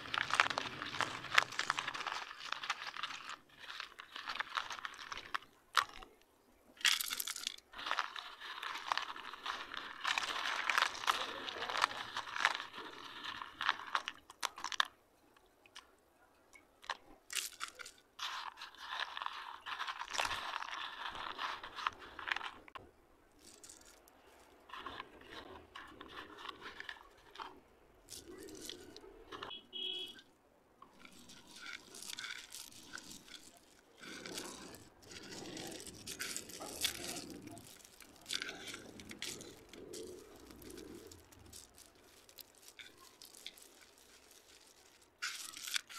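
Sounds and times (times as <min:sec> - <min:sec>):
slate pieces clicking and scraping: 0:00.0 - 0:15.9, 0:16.5 - 0:29.6, 0:30.8 - 0:45.9.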